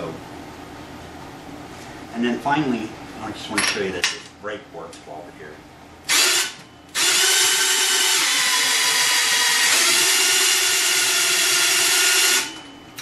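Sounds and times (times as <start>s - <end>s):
cordless drill whining: 6.1s - 12.6s.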